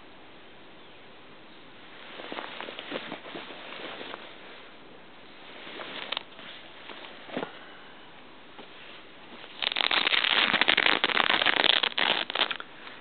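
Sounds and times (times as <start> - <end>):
heavy fabric rustling: 1.9 - 7.7
velcro ripping open: 9.5 - 12.6.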